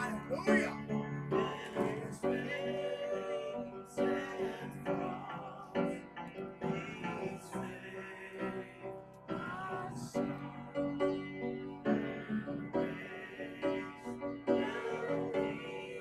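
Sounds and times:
man singing: 0.0s - 8.7s
piano accompaniment: 0.0s - 16.0s.

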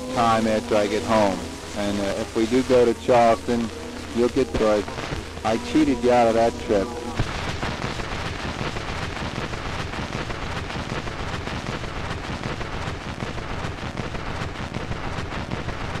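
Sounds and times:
record surface hiss and crackle: 0.0s - 16.0s.

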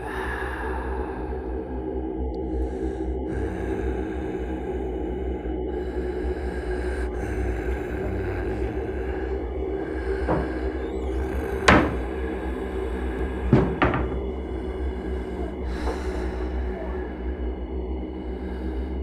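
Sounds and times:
soft music: 0.0s - 19.0s
low hum: 0.6s - 19.0s
cupboard door knocking: 10.1s - 10.6s, 11.2s - 12.1s, 13.5s - 14.4s.

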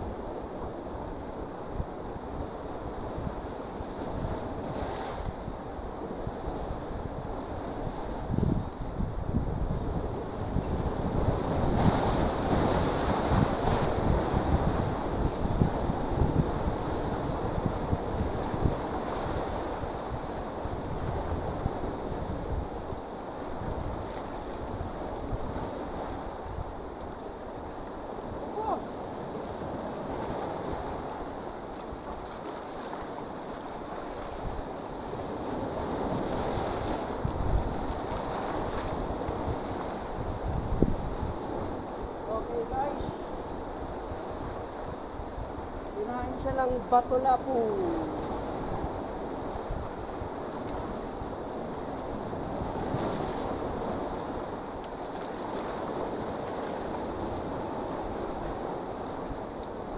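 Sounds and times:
surf washing over rocks: 0.0s - 59.9s
wind buffeting microphone: 1.8s - 27.0s, 34.4s - 54.5s.

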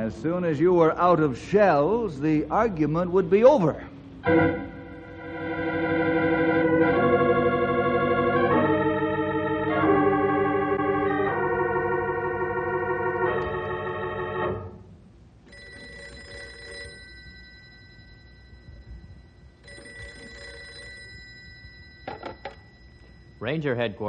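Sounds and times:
organ music: 0.0s - 17.0s
telephone bell ringing: 15.5s - 23.5s.

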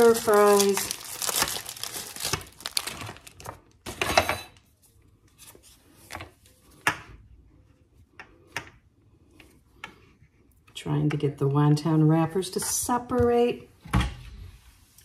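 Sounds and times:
plastic packaging crinkling: 0.0s - 3.9s.

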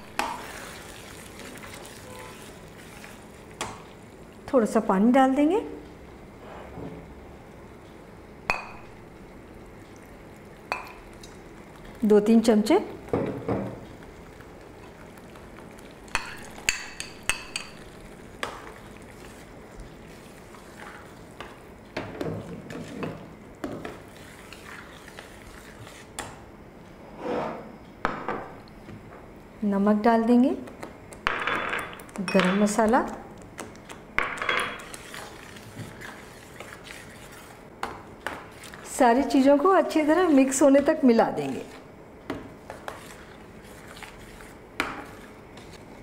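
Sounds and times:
stirring thick gravy: 0.0s - 4.5s, 13.8s - 26.5s, 34.8s - 46.0s.

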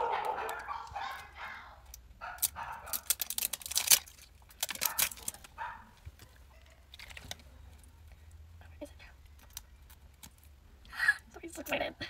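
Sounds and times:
plastic shrink wrap crinkling: 1.9s - 8.0s.

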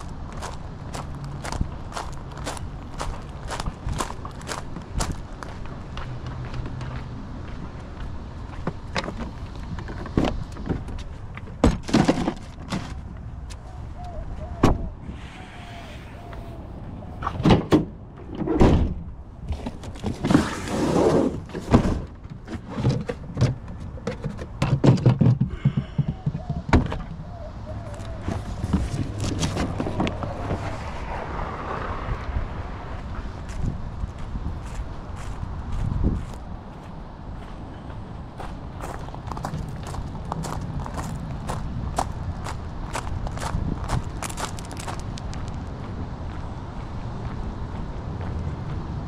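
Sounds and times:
plastic buckets and boxes clattering: 11.6s - 13.0s, 21.3s - 25.8s.

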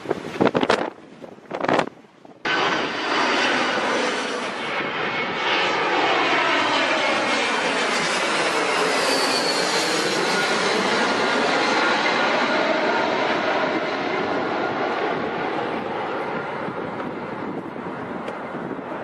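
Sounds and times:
jet engines rushing overhead: 0.0s - 19.0s.

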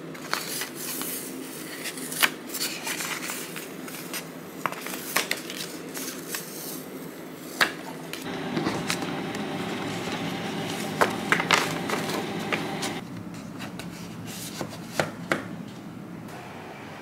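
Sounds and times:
steady low hum: 8.3s - 13.0s.

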